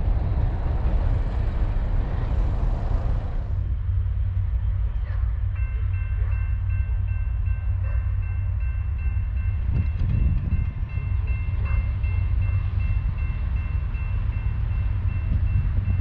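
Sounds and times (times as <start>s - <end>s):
low railroad rumble: 0.0s - 16.0s
crossing bell ringing: 5.4s - 16.0s.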